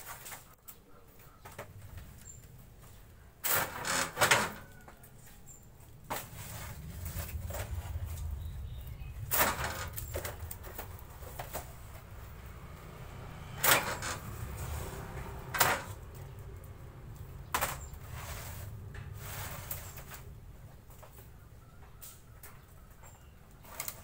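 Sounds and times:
steady low rumble: 5.1 - 21.6
wood veneer sheets rustling: 6.1 - 8.4.

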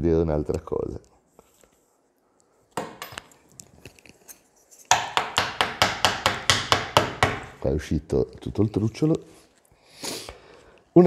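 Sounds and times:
fast sharp knocks on wood: 4.9 - 7.6.

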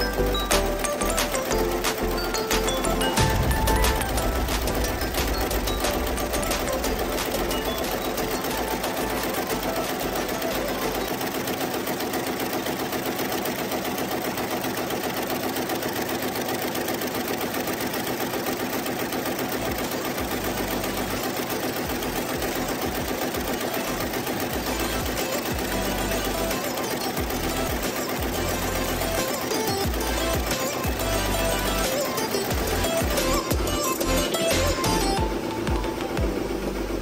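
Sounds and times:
embroidery machine clattering: 0.0 - 37.0.

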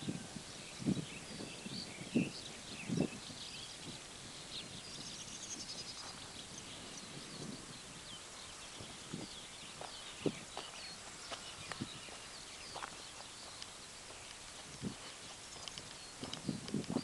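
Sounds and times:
birds chirping: 0.0 - 17.0
footsteps on dirt: 6.0 - 6.4, 8.8 - 17.0.

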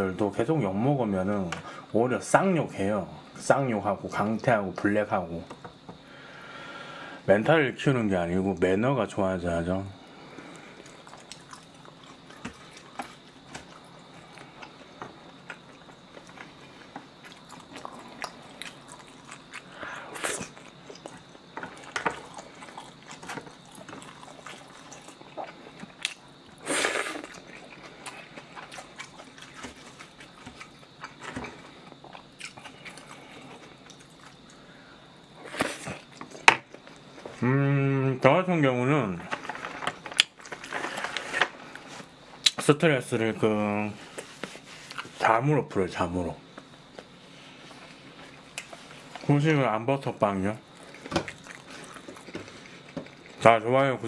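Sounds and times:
close chewing and mouth sounds: 10.0 - 37.4, 44.0 - 45.2, 50.6 - 53.4.

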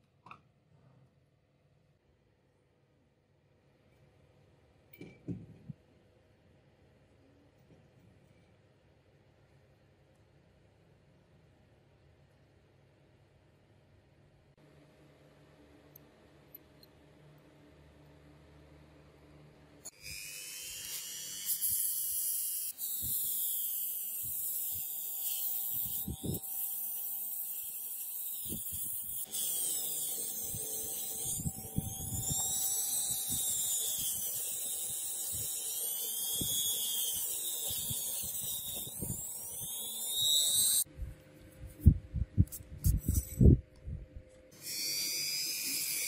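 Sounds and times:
rotary tool grinding metal: 19.9 - 40.9, 42.5 - 43.6, 44.6 - 46.0.

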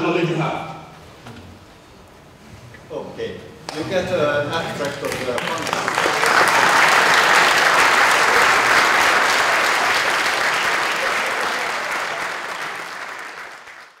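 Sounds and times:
audience applauding: 4.7 - 14.0.

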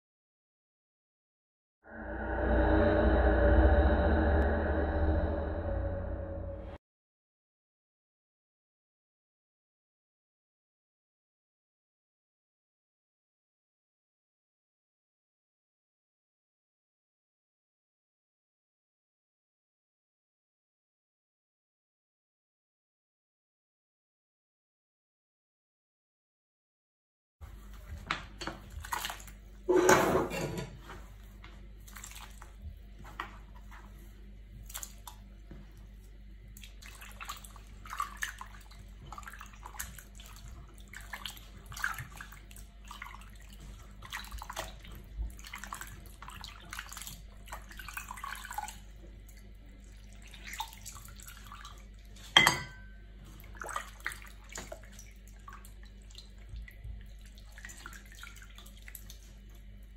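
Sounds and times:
water sloshing in pot: 27.5 - 59.9.

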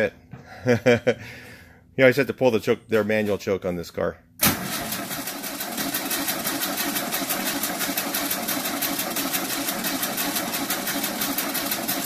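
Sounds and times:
air-cooled engine running: 4.4 - 12.0.

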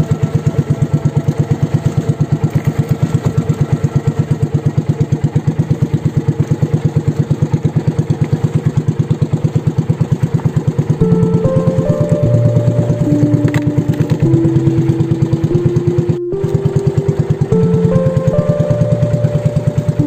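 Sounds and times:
small boat engine running: 0.0 - 20.0.

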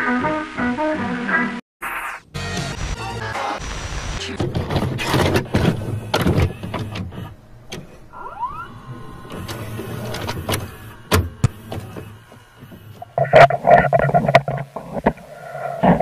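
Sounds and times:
low hum: 7.3 - 16.0
short rising whine: 8.1 - 11.1
crackling static: 11.6 - 16.0.

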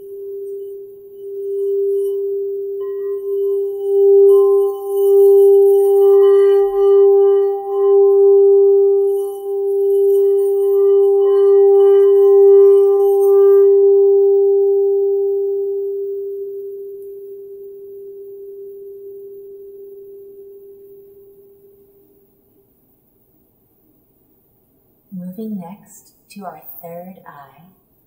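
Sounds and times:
singing bowl ringing: 0.0 - 22.4.

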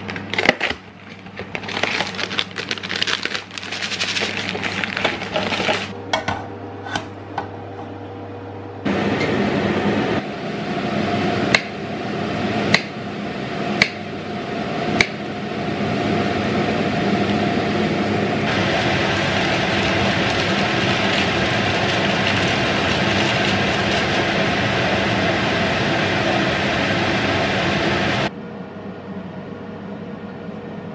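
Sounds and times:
steady noise: 16.6 - 28.3.

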